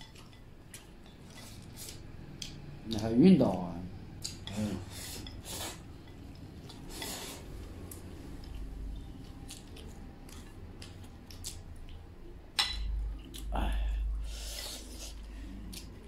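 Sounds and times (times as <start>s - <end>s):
eating noises: 0.0s - 12.3s, 13.0s - 16.0s
chopsticks scraping porcelain bowl: 4.4s - 7.5s.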